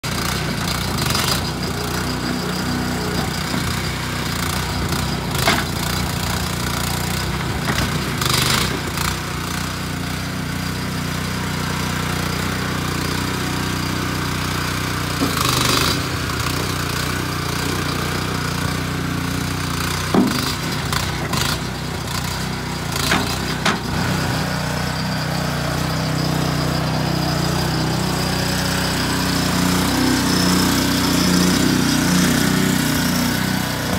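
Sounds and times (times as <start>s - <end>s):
small engine running: 0.0s - 33.9s
knocks and clanks: 20.0s - 21.5s, 22.9s - 24.1s.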